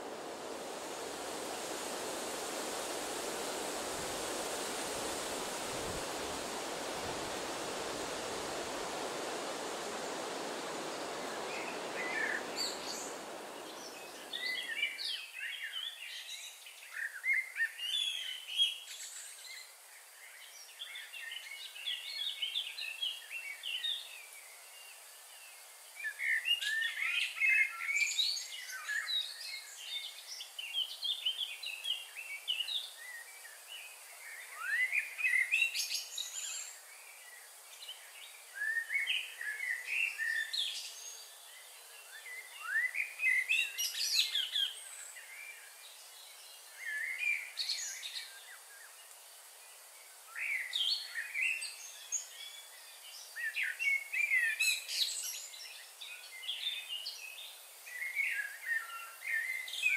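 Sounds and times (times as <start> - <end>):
steady rushing noise: 0.0 - 15.0
songbirds chirping and trilling: 0.0 - 18.9.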